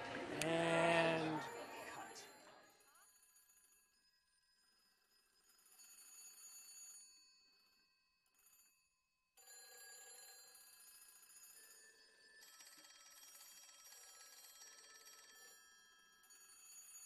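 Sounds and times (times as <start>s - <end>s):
faint telephone ringing: 0.0s - 8.8s, 9.4s - 17.0s.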